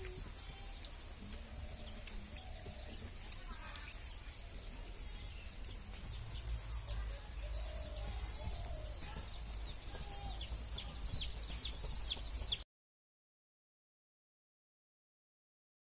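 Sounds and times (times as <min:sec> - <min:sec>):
chickens clucking: 0:00.0 - 0:12.6.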